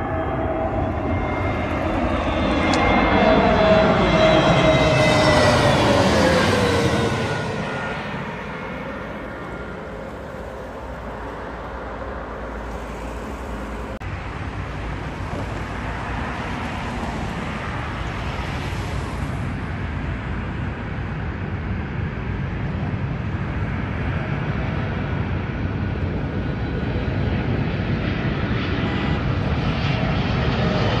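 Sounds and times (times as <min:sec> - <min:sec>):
jet engines roaring: 0:00.0 - 0:31.0.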